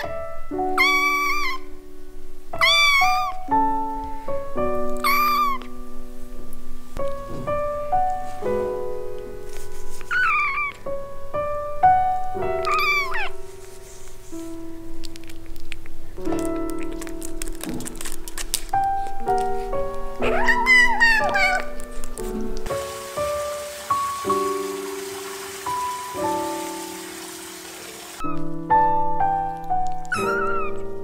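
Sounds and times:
soft piano music: 0:00.0 - 0:31.0
kitten meowing: 0:00.7 - 0:01.7, 0:02.6 - 0:03.4, 0:05.0 - 0:05.7, 0:10.1 - 0:10.8, 0:12.6 - 0:13.4, 0:20.2 - 0:21.8, 0:30.0 - 0:30.9.

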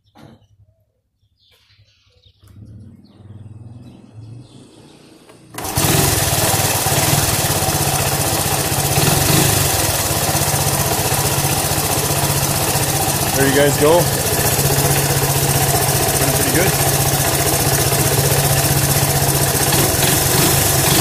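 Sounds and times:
engine cranking: 0:05.3 - 0:21.0
engine running steadily: 0:05.3 - 0:21.0.

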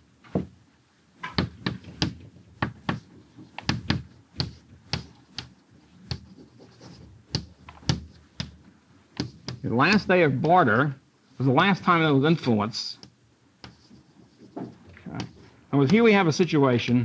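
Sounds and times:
taps of writing on a board: 0:01.2 - 0:08.6, 0:09.2 - 0:10.5, 0:13.6 - 0:16.1.

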